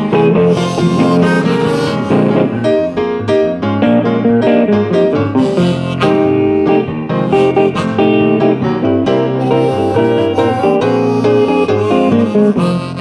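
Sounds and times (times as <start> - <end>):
blues band playing: 0.0 - 13.0
electric guitar lines: 0.0 - 13.0.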